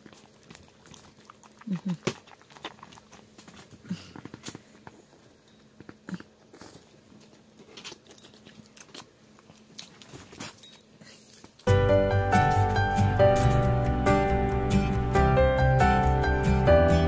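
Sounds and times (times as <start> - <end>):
dog chewing snack crunches: 0.0 - 11.7.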